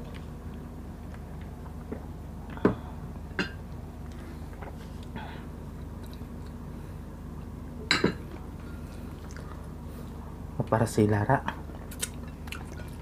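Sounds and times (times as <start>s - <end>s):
chewing and eating: 0.0s - 2.6s, 3.7s - 6.7s, 8.3s - 10.4s, 11.5s - 13.0s
steady low hum: 0.0s - 13.0s.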